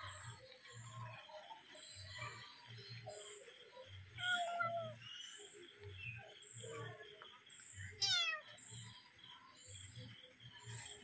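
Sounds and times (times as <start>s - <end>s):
cat meowing: 4.2s - 5.0s, 8.0s - 8.4s.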